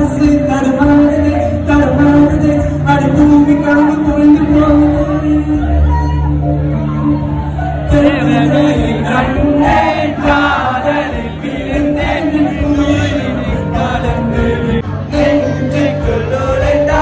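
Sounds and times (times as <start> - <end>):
voices singing together: 8.0 - 17.0.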